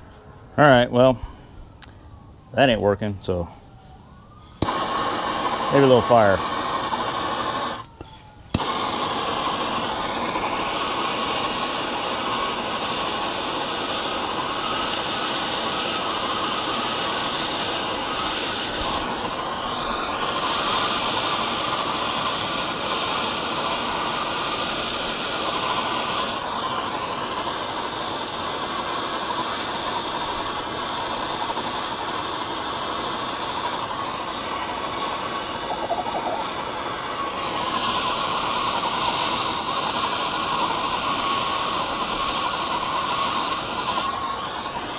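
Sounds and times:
torch flame hissing: 3.2 - 44.9
torch igniter click: 4.6 - 44.9.

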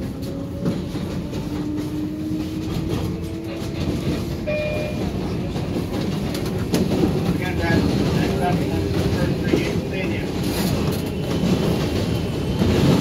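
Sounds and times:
subway car rumbling: 0.0 - 13.0.

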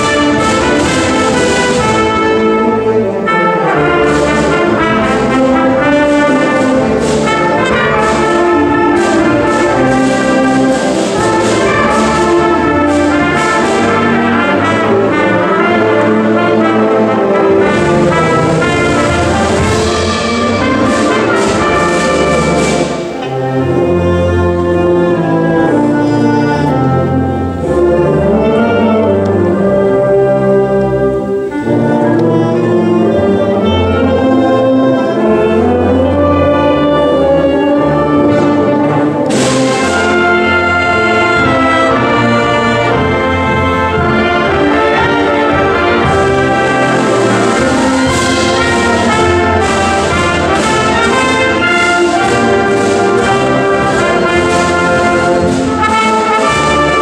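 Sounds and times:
high percussion strokes: 0.0 - 28.6, 31.3 - 57.0
concert band playing: 0.0 - 57.0.

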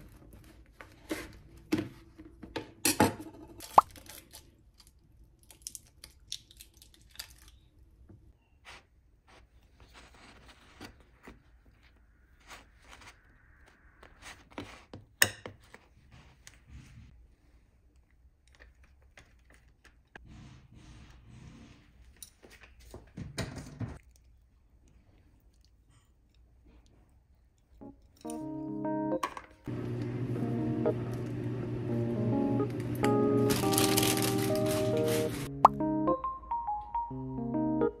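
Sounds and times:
foil wrapper crinkling: 33.4 - 35.5.

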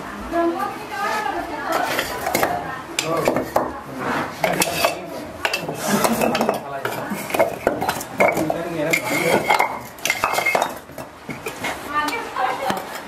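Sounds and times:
bricks clinking and knocking: 1.7 - 3.8, 4.4 - 11.7.

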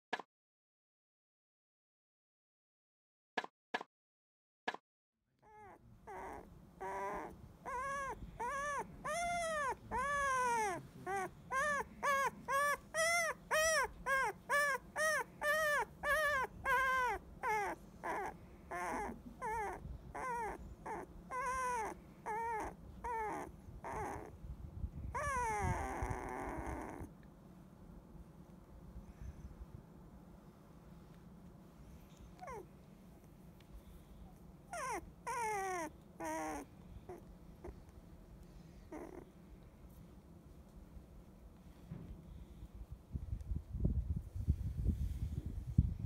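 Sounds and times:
puppy whimpering: 5.4 - 24.4, 25.1 - 27.1, 32.1 - 32.7, 34.2 - 37.9, 38.7 - 39.4.

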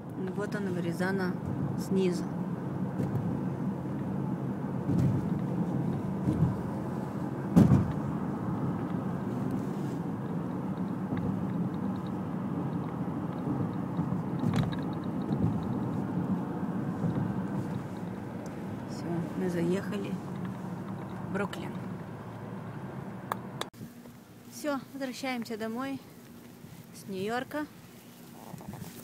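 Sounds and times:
car road and engine noise: 0.0 - 29.0
short thump: 4.9 - 5.4, 7.5 - 8.1.

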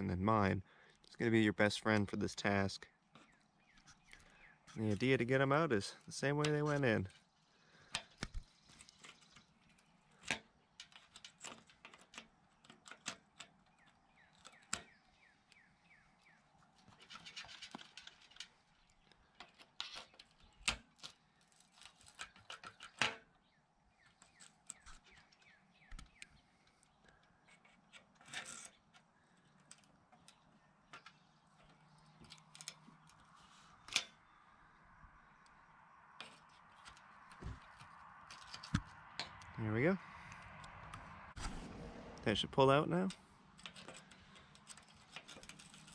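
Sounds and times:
pliers clicking and scraping metal: 7.9 - 15.6, 24.1 - 34.2, 36.2 - 39.5, 43.1 - 45.9.

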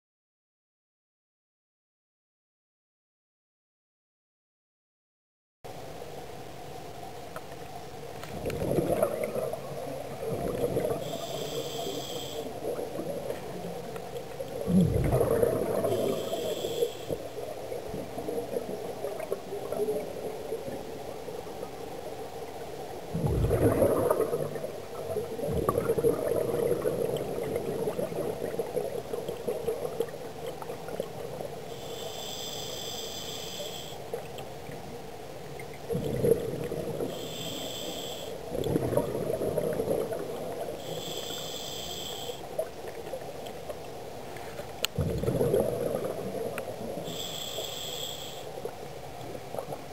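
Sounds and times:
exhaled bubbles rumbling underwater: 8.2 - 44.3, 44.9 - 49.9
regulator hissing on inhale: 11.0 - 12.6, 15.8 - 17.4, 31.6 - 34.1, 37.1 - 38.4, 40.8 - 42.5, 47.0 - 48.6.

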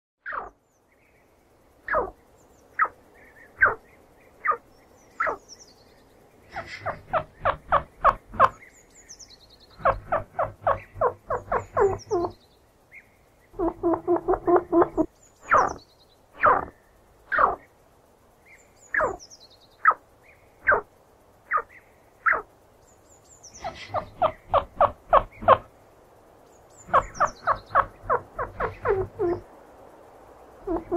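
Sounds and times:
chinchilla squeaking: 9.8 - 12.3, 26.9 - 29.4.

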